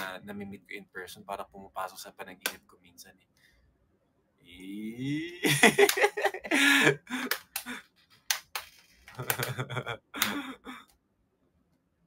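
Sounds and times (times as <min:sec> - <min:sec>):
young man laughing: 0:04.9 - 0:07.8, 0:09.2 - 0:10.8.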